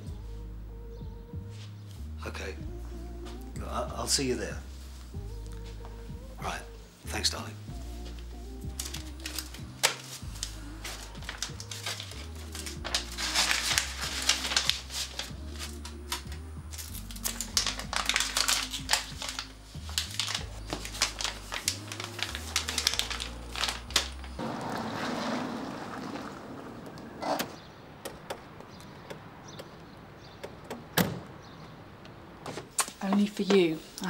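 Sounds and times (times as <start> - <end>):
soft street ambience: 0.0 - 34.0.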